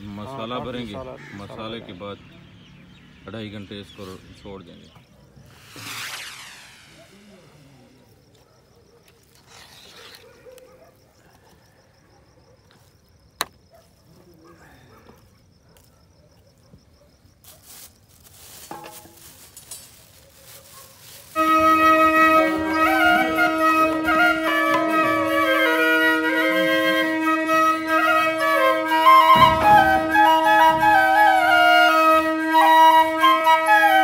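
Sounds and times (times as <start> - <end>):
flute melody over held note: 21.4 - 34.0.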